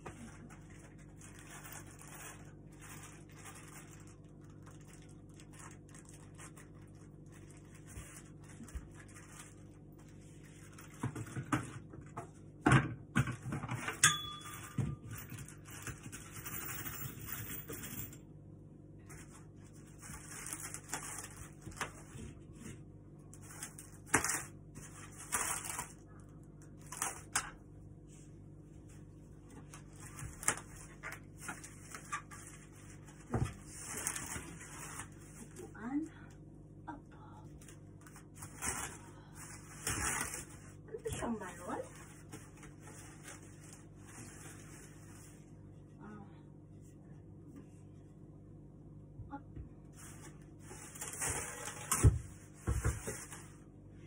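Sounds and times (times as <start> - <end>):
plastic wrapping rustling: 0.0 - 12.1, 19.0 - 22.7, 23.3 - 27.5, 28.9 - 35.9, 37.6 - 45.6, 49.9 - 53.7
steady low hum: 0.0 - 54.0.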